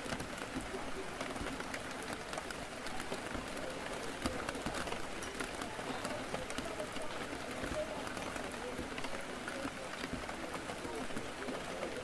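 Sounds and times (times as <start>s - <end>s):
background chatter: 0.0s - 12.0s
rain on a window: 0.0s - 12.0s.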